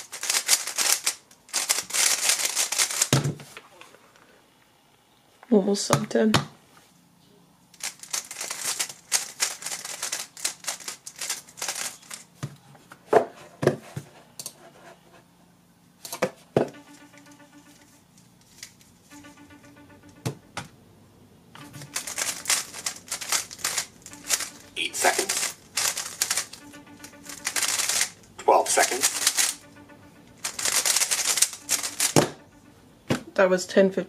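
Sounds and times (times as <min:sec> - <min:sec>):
puzzle cube layers clacking: 0:21.6 - 0:29.7, 0:30.4 - 0:32.4.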